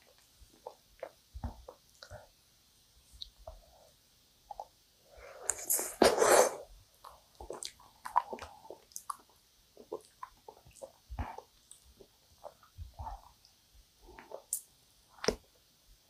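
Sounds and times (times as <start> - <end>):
soft sticky chewing: 0.0 - 2.4, 3.2 - 4.8, 6.9 - 15.5.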